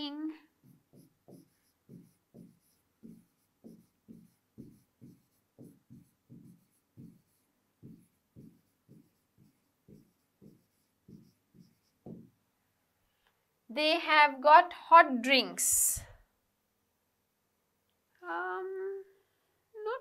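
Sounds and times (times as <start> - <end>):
stylus writing on screen: 0.5 - 12.4.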